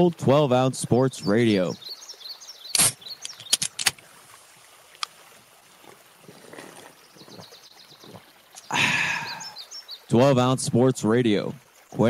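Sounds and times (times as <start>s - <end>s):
liquid trickling and gurgling: 1.4s - 10.2s.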